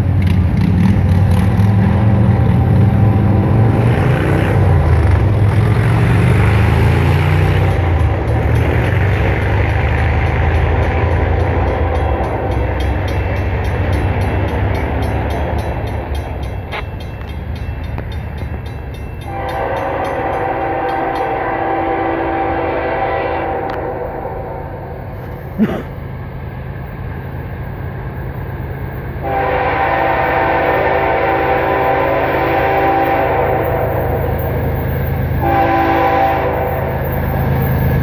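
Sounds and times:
low train rumble: 0:00.0 - 0:38.0
locomotive air horn blasts: 0:19.3 - 0:24.8, 0:29.2 - 0:34.4, 0:35.4 - 0:37.0.

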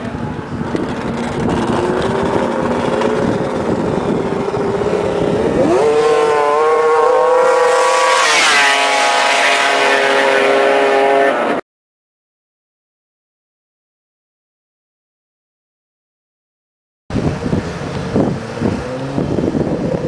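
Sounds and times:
rush of passing sleds: 0:00.0 - 0:11.6
snowmobile engines revving: 0:00.0 - 0:11.6, 0:17.2 - 0:20.0.

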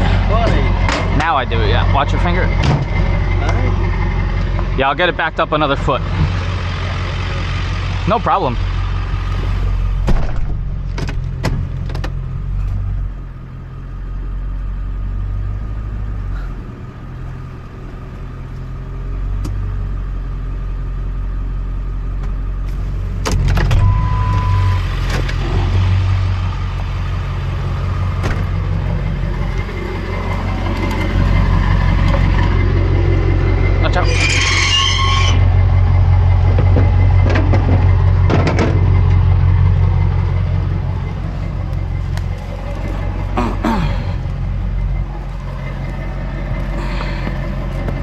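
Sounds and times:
truck engine running: 0:00.0 - 0:48.0
short beep: 0:23.8 - 0:24.8.

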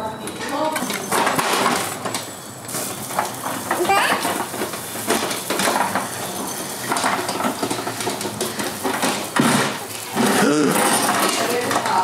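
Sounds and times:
lawn mower deck rattling: 0:03.1 - 0:12.0.

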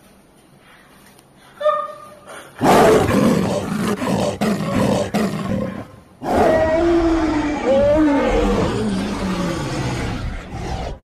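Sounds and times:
big cat roaring: 0:02.6 - 0:11.0.

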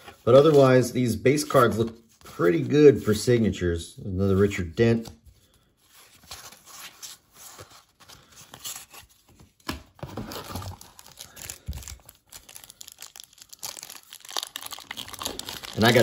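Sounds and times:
wrapper tearing and crinkling: 0:10.4 - 0:16.0.

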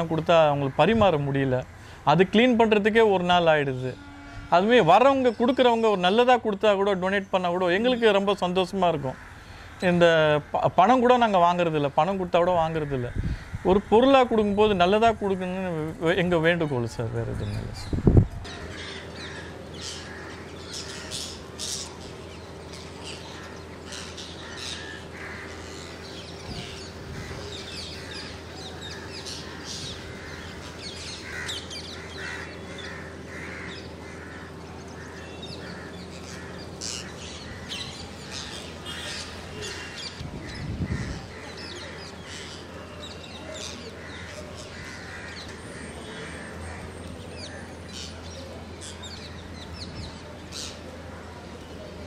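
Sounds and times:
parakeets screeching: 0:16.8 - 0:50.8.

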